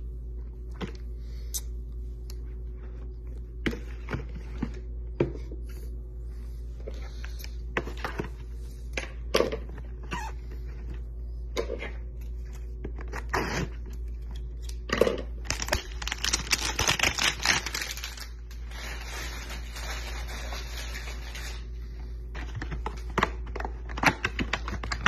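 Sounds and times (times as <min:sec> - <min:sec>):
cardboard crackling and tearing: 0:15.5 - 0:21.5.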